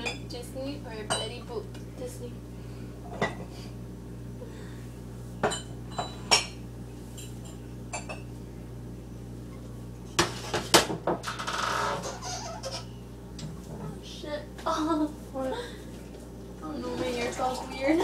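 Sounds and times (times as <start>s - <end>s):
dishes and glassware clinking: 5.4s - 6.6s.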